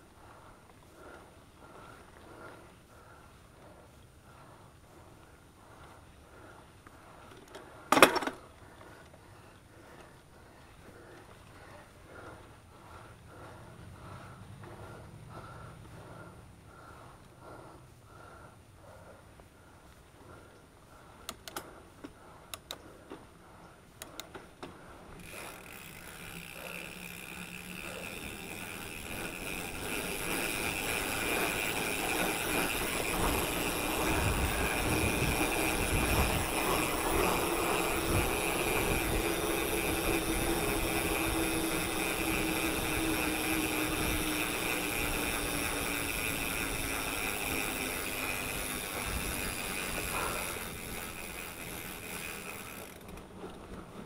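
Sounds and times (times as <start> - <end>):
bike tyre rumble: 0.0 - 54.0
sharp clicks: 21.2 - 23.2, 24.0 - 28.9
steady high whir: 23.4 - 54.0
wind noise on camera: 33.1 - 37.1.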